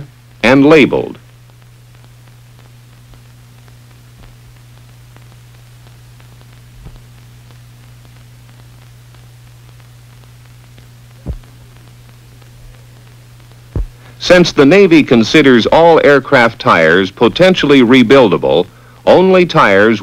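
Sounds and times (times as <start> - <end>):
faint crackle: 0.0 - 20.0
film soundtrack hum and hiss: 0.0 - 20.0
short low thumps: 11.2 - 11.6, 13.7 - 14.1.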